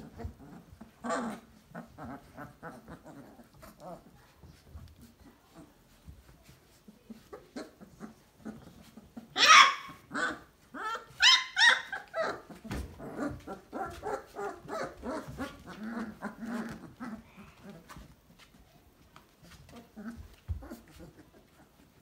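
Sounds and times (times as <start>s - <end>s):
puppies yelping: 7.4s - 17.6s.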